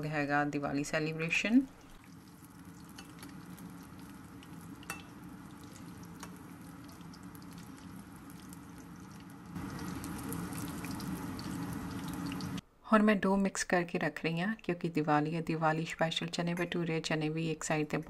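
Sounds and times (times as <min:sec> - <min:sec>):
food deep-frying in hot oil: 0:01.4 - 0:12.6.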